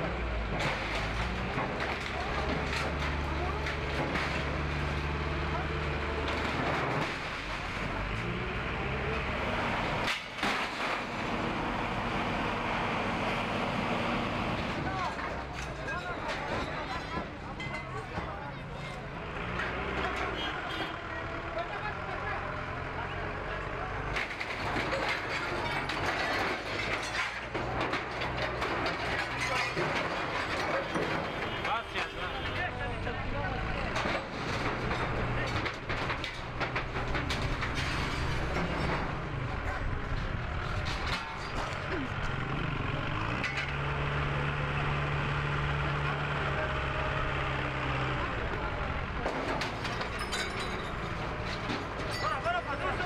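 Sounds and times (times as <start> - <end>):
metallic clattering and clanking: 0.0 - 8.3, 9.6 - 11.6, 14.0 - 20.4, 24.1 - 32.6, 33.8 - 44.3, 47.6 - 53.0
diesel engine running: 0.0 - 53.0
street noise: 0.0 - 53.0.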